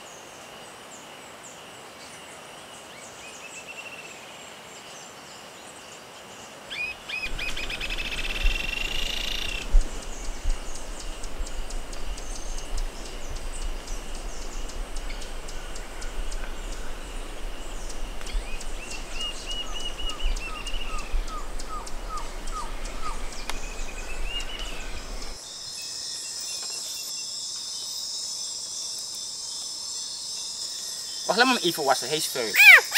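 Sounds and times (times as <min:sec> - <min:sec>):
steady hiss: 0:00.0 - 0:32.9
bird calls: 0:06.7 - 0:28.0, 0:30.7 - 0:32.9.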